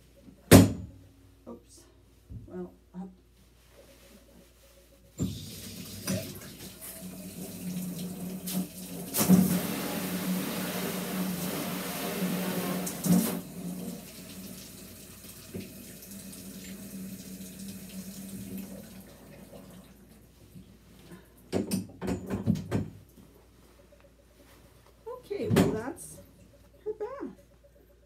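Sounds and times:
water running from bathtub tap: 5.2 - 20.2.

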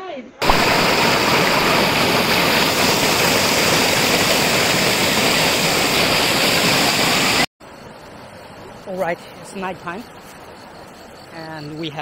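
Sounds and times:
river rushing over rocks: 0.4 - 6.8.

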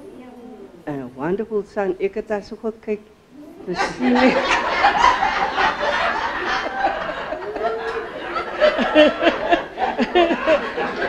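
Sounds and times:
people laughing: 3.7 - 11.0
woman laughing into microphone: 3.7 - 11.0.

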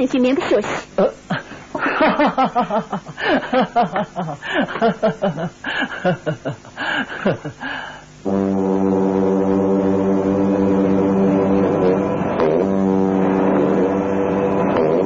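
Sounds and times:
deep brass horn note: 8.2 - 15.0.

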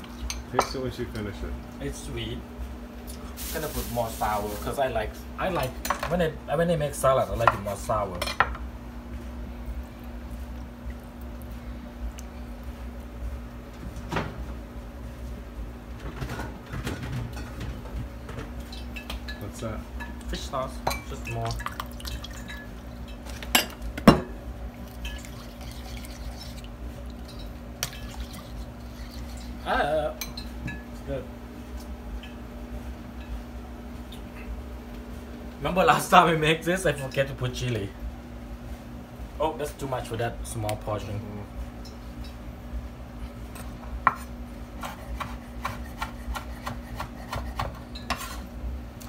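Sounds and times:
knife chopping on wooden board: 44.8 - 48.3.

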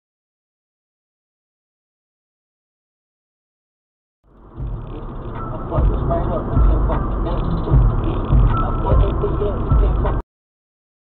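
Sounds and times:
car road and engine noise: 4.3 - 10.2.

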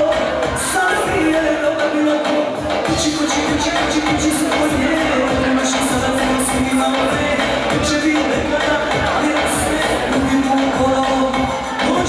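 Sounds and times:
keyboard accompaniment: 0.0 - 12.0
steady low beat: 2.6 - 12.0.

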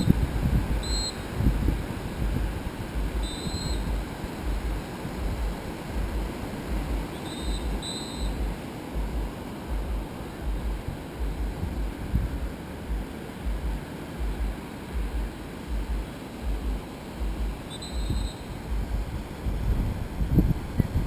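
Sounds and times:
surf on sandy beach: 0.0 - 21.0
wind buffeting microphone: 0.0 - 21.0
short high chirps: 17.7 - 18.6.

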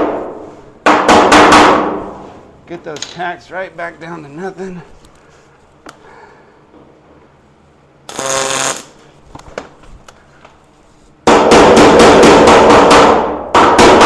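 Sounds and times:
welder hiss: 8.1 - 9.0.

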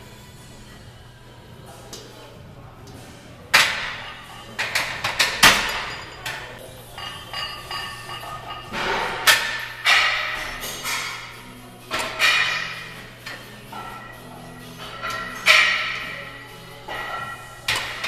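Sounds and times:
gym chatter: 0.5 - 18.0
weight plates clanking: 3.6 - 18.0.

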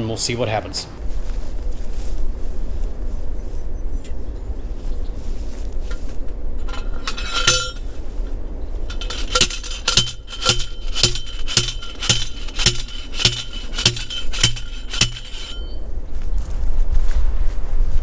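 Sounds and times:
light metal clink: 6.6 - 7.9, 8.9 - 15.8
post driver clanking on metal: 6.6 - 7.9, 8.9 - 15.8.

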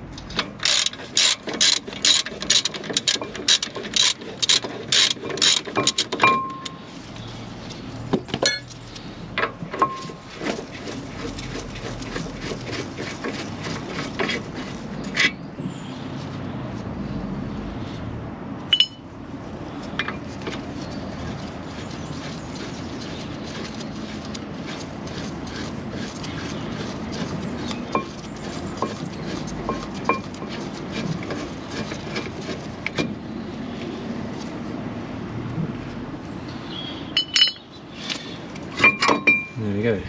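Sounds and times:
steady background noise: 0.0 - 40.0
sharp ringing metal clinks: 18.7 - 19.0, 37.2 - 37.6.

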